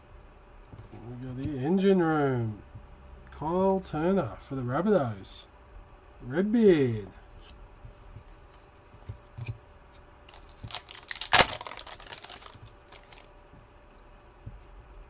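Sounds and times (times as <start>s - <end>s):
cards being handled: 10.3s - 13.3s
wrapper crinkling and tearing: 10.3s - 13.3s.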